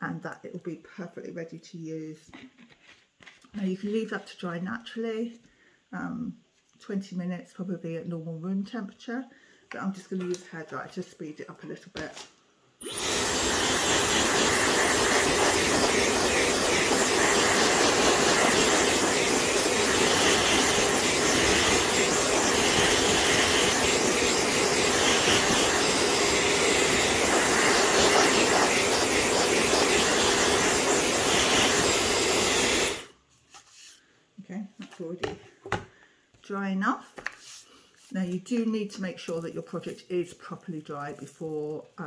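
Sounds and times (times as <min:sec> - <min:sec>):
hairdryer running: 0:12.8 - 0:33.2.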